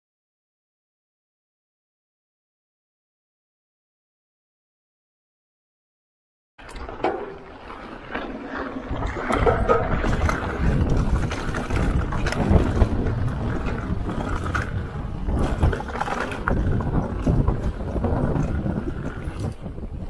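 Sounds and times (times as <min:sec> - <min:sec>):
bike rattling over rocks: 0:06.6 - 0:20.0
wind buffeting microphone: 0:06.7 - 0:20.0
tyres rumbling over dirt: 0:07.0 - 0:20.0.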